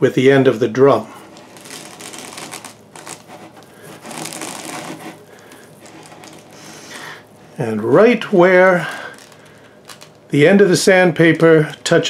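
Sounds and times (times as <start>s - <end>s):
sandpaper rustling and crackling: 1.2s - 10.2s.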